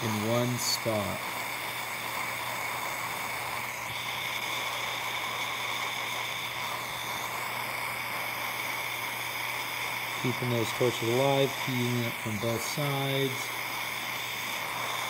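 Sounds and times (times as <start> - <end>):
torch flame hissing: 0.0 - 15.0.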